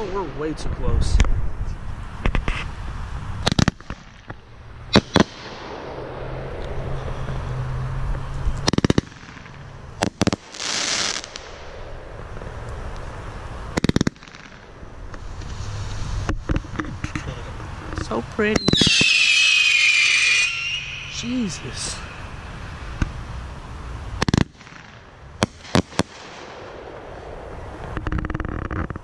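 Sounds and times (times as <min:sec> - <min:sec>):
crackling hiss: 0:00.0 - 0:29.0
firework cracks and pops: 0:02.2 - 0:02.7, 0:03.4 - 0:06.8, 0:08.6 - 0:22.1, 0:24.2 - 0:29.0
firework bang: 0:03.4 - 0:07.0, 0:18.6 - 0:23.2.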